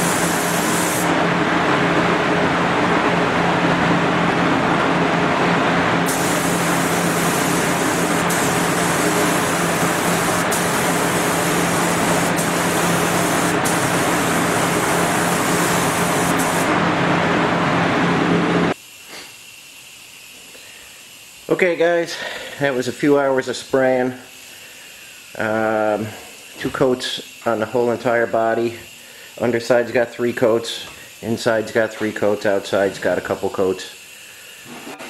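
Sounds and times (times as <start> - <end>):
paint spray gun hissing: 0.0 - 1.2, 6.0 - 16.7, 24.2 - 34.7
mechanical hum with low drone: 0.0 - 35.0.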